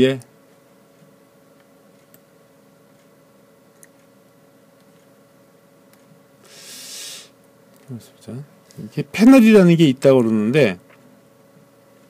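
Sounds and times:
faint steady hum: 0.0s - 12.0s
computer mouse clicks: 1.6s - 2.3s, 3.7s - 4.1s
short hiss: 6.4s - 7.4s.

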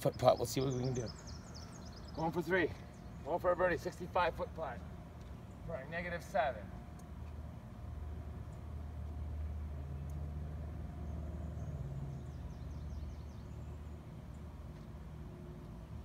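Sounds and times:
songbird singing: 0.0s - 16.0s.

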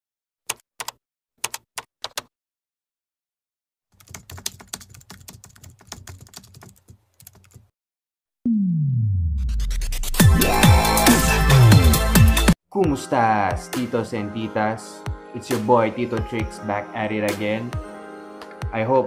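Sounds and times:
keyboard typing: 0.5s - 2.3s, 4.0s - 7.7s
tone sliding down in pitch: 8.5s - 10.2s.

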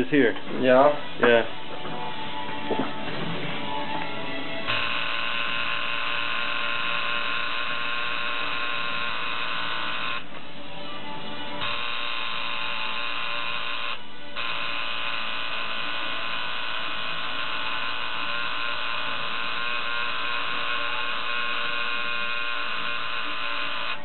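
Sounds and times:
tattoo machine buzzing: 4.6s - 10.3s, 11.6s - 24.0s.

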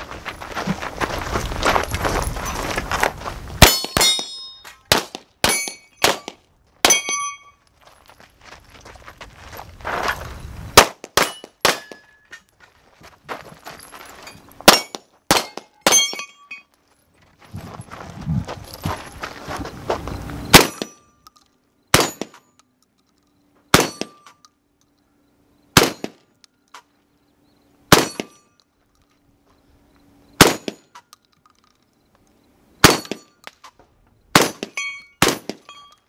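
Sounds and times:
distant steel target clanging: 3.6s - 7.6s, 14.3s - 16.7s, 20.5s - 21.3s, 21.9s - 22.7s, 23.7s - 24.7s, 27.9s - 28.7s, 32.8s - 33.6s, 34.3s - 36.0s
rifle shots: 4.9s - 7.1s, 10.8s - 12.0s, 20.5s - 20.9s, 21.9s - 22.4s, 23.7s - 24.2s, 25.8s - 26.2s, 27.9s - 28.4s, 30.4s - 30.8s, 32.8s - 33.3s, 34.3s - 35.7s.

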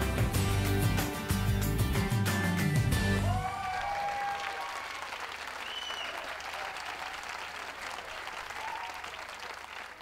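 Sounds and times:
audience applauding: 3.2s - 10.0s.

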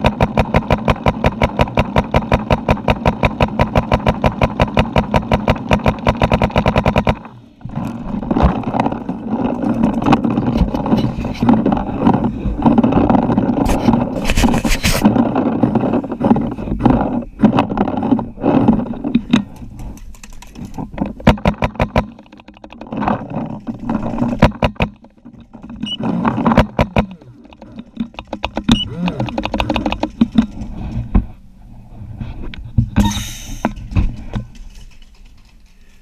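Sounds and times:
paintball markers rapid firing: 0.0s - 7.3s, 26.0s - 30.6s
movement noise: 7.1s - 36.0s.

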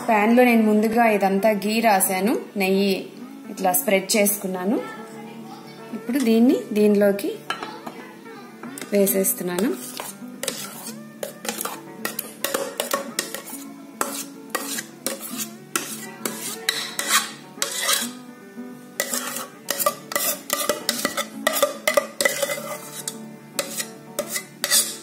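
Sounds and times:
background music with held notes: 0.0s - 25.0s
spoon clinking on a pan: 7.5s - 7.9s, 9.8s - 18.2s, 19.0s - 25.0s
metal spoon scraping a pan: 8.8s - 18.3s, 18.9s - 25.0s.

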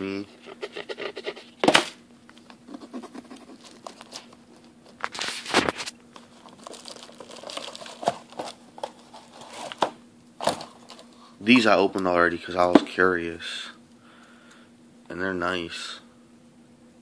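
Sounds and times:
plastic wrapping crinkling: 3.6s - 11.2s.

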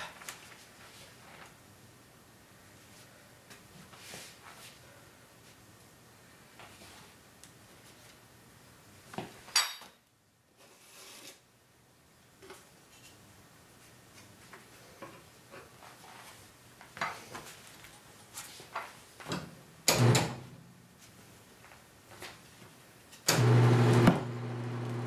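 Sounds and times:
turntable motor humming: 23.3s - 25.0s.

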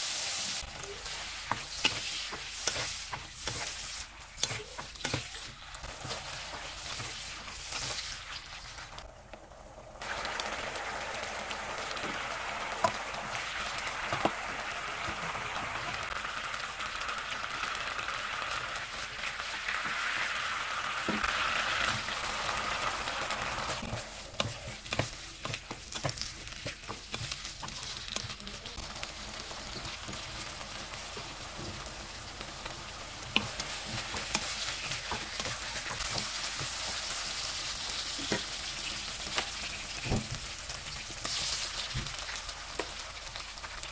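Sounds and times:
food sizzling in oil: 0.0s - 43.9s
wooden spatula scraping a pan: 0.8s - 8.9s, 23.7s - 28.4s.

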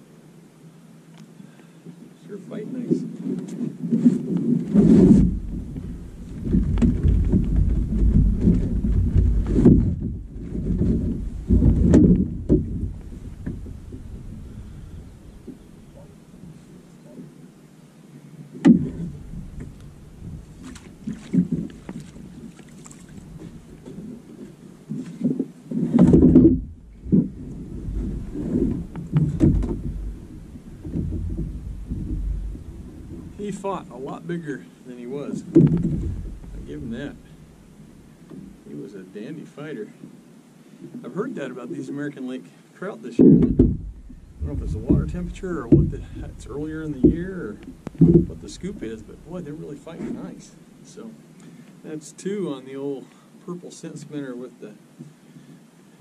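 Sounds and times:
wind buffeting microphone: 3.7s - 16.9s, 18.6s - 38.7s, 43.4s - 50.6s
knocks and thumps: 3.9s - 16.1s, 18.6s - 24.1s, 24.9s - 33.9s, 35.4s - 37.4s, 43.2s - 50.3s.

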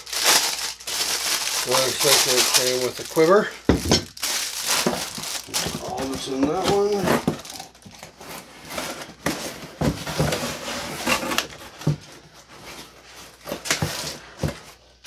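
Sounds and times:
cardboard boxes rustling and scraping: 4.3s - 15.0s.

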